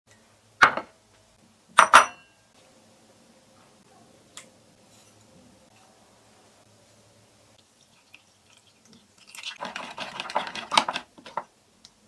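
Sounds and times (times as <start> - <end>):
ceramic dishes clinking: 1.8 - 2.3.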